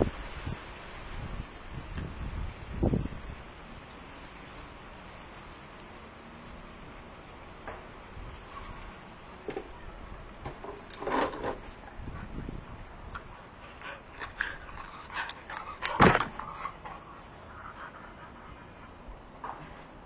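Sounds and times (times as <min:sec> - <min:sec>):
dog panting: 0:11.9 - 0:19.5.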